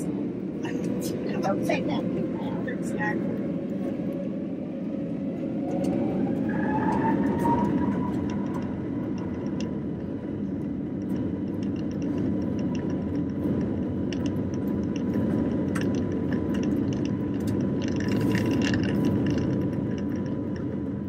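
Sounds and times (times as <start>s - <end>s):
airliner engine rumble: 0.0s - 21.0s
cabin ticks and rattles: 6.9s - 21.0s.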